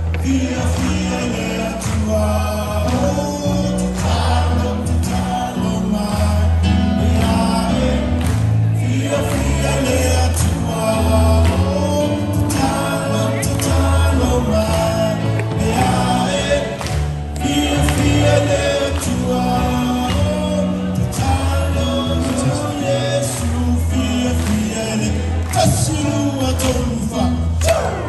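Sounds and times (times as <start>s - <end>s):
steady bass line: 0.0s - 28.0s
choir singing a carol: 0.2s - 2.8s, 3.8s - 24.5s.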